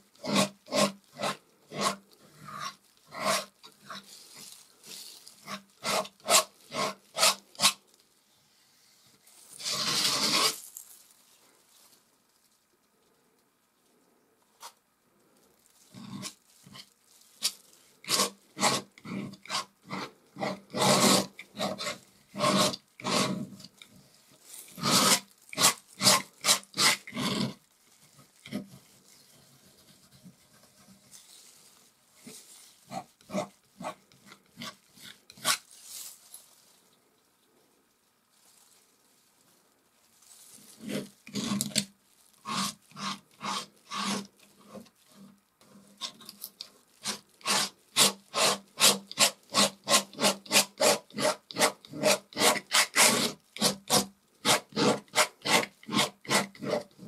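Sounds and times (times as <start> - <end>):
palette knife scraping paint: 0.0 - 7.8, 9.5 - 10.6, 15.9 - 24.0, 24.6 - 31.6, 32.2 - 35.8, 40.6 - 57.0.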